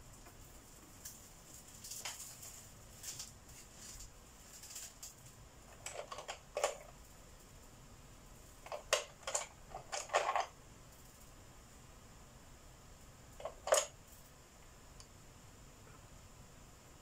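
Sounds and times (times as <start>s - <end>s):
faint soft rustling: 0.1s - 5.4s.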